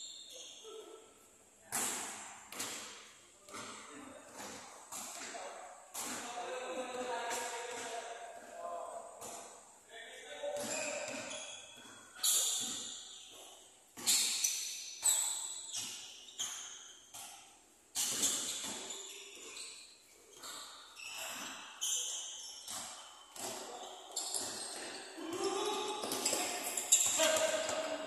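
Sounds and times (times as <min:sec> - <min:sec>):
sneakers squeaking on wooden court: 0:00.0 - 0:01.1, 0:01.9 - 0:08.5, 0:10.4 - 0:28.0
basketball bouncing: 0:22.6 - 0:25.4, 0:26.0 - 0:28.0.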